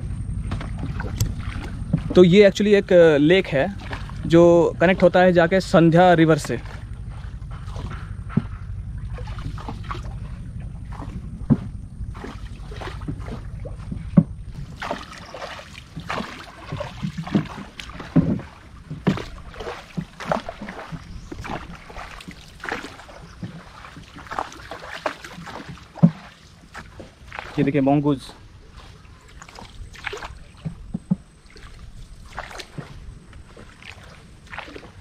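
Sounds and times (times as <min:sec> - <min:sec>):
low rumble: 0:00.0 - 0:24.4
water sloshing against boat: 0:00.0 - 0:35.0
irregular splashes and knocks: 0:00.3 - 0:27.8, 0:28.7 - 0:35.0.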